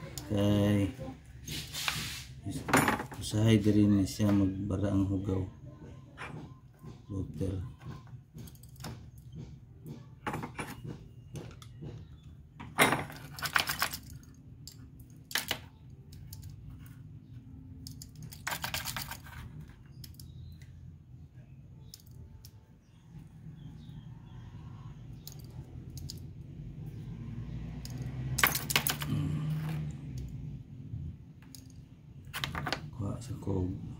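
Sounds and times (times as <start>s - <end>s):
metal clicking and clinking: 12.6s - 16.9s, 17.8s - 20.4s, 21.8s - 22.6s, 25.2s - 26.3s, 27.8s - 30.3s.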